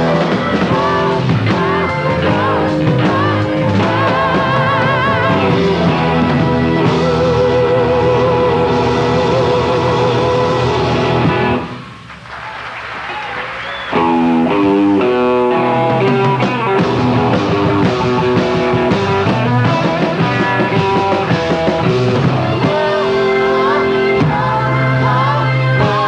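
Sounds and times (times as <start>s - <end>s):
steady bass line: 0.0s - 12.2s, 13.9s - 26.0s
live rock band playing: 0.0s - 26.0s.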